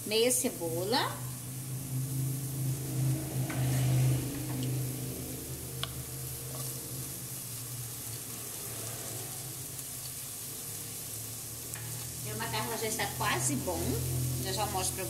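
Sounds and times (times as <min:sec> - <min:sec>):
low hum: 0:00.0 - 0:09.4
onion sizzling in oil: 0:00.0 - 0:15.0.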